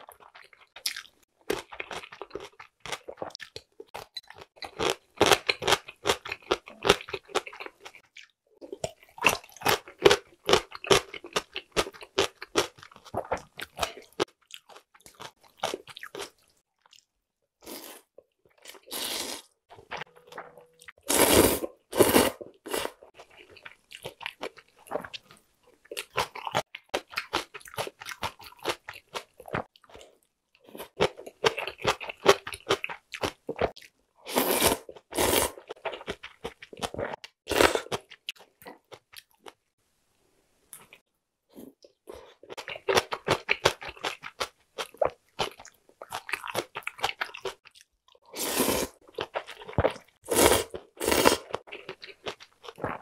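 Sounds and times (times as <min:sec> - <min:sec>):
wet chewing and crunching: 0:00.0 - 0:21.1, 0:22.5 - 0:39.6, 0:41.8 - 0:53.0
slurping noodles: 0:18.8 - 0:19.5, 0:21.0 - 0:23.1, 0:34.3 - 0:35.7, 0:48.2 - 0:49.0, 0:50.0 - 0:51.7.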